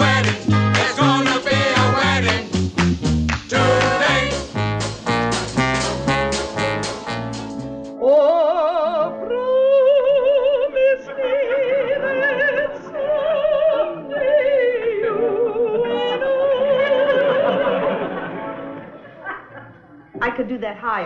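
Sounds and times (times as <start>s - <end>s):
brassy swing band music: 0.0s - 8.0s
piano accompaniment: 0.0s - 9.4s
woman singing operatically: 8.0s - 17.5s.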